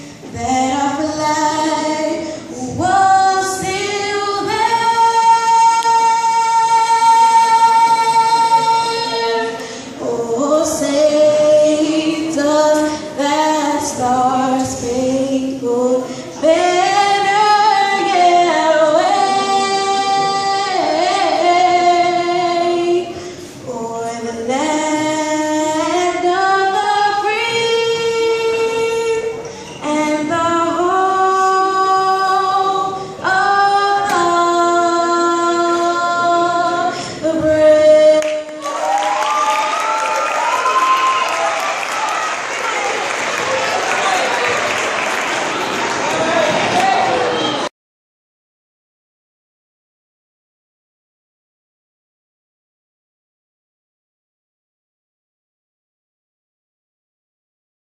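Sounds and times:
woman singing through pa: 0.0s - 41.2s.

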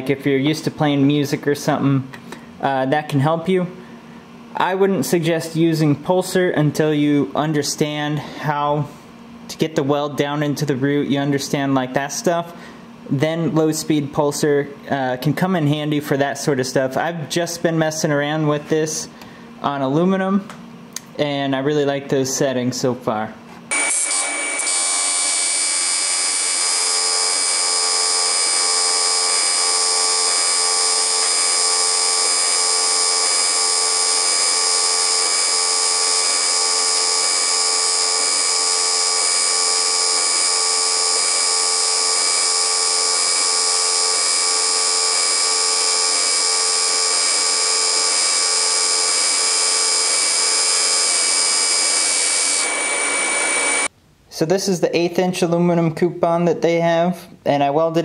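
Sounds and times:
welding arc buzzing: 23.7s - 53.9s.

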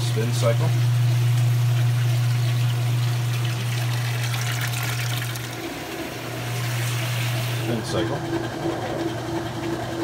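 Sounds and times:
washing machine motor humming: 0.0s - 10.0s
running trickling water: 0.9s - 7.6s.

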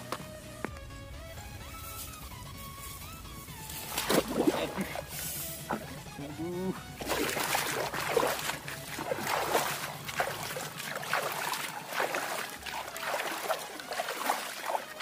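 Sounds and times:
hands splashing in water: 3.8s - 6.1s, 6.9s - 15.0s.

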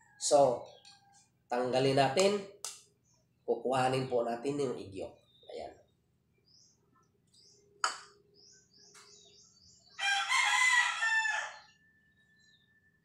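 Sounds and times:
small birds chirping: 0.0s - 13.0s
rooster crowing: 10.0s - 12.2s.

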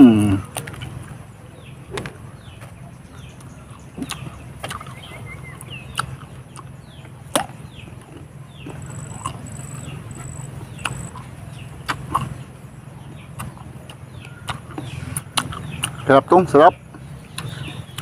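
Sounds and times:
steady low hum: 0.0s - 18.0s
crunching bites into fruit: 4.0s - 12.4s, 13.2s - 16.2s, 17.0s - 18.0s.

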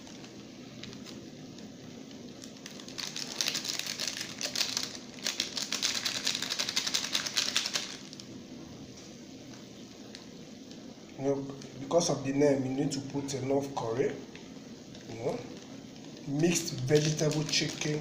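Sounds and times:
plastic sachet crinkling: 0.0s - 8.4s, 14.9s - 18.0s.

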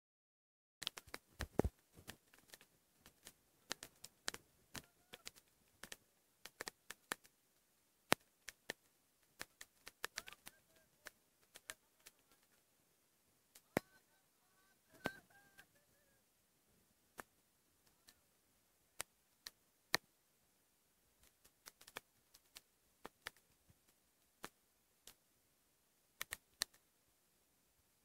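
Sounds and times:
sharp clicks and crackles: 0.8s - 7.3s, 8.1s - 12.6s, 21.2s - 25.2s, 26.2s - 26.8s
faint distant voices: 3.4s - 6.4s, 10.0s - 19.0s.

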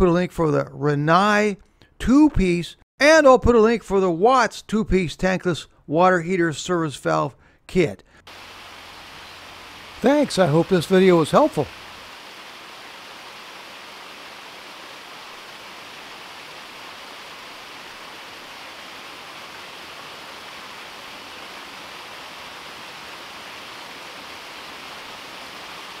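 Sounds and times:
waterfall splashing over rocks: 8.3s - 26.0s.

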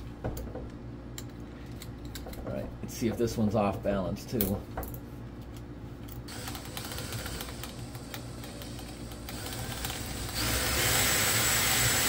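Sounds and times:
drill chuck ratcheting clicks: 6.3s - 12.0s.

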